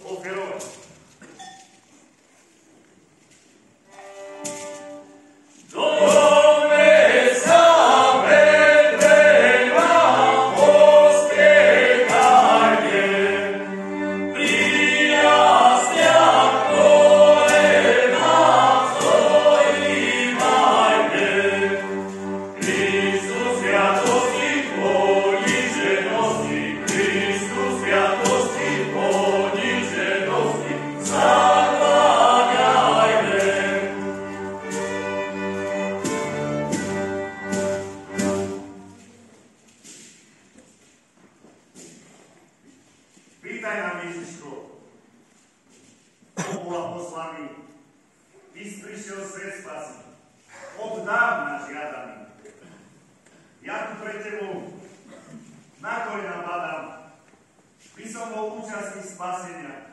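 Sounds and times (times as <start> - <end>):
held low accompanying notes: 3.9 - 39.6
choir singing a carol: 4.3 - 39.0.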